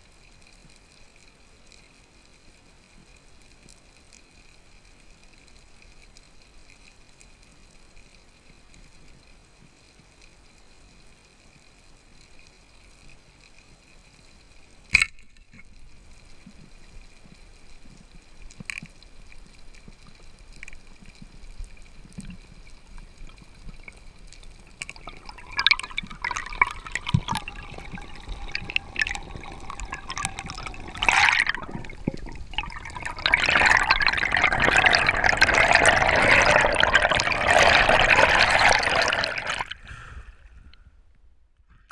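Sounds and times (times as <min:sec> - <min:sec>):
faint steady hum: 0:00.0 - 0:41.9
underwater bubbles rushing: 0:23.2 - 0:40.0.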